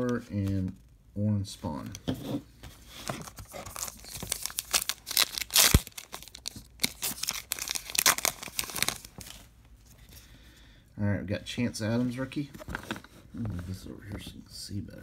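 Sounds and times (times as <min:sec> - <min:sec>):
wrapper tearing and crinkling: 0:03.4 - 0:09.5.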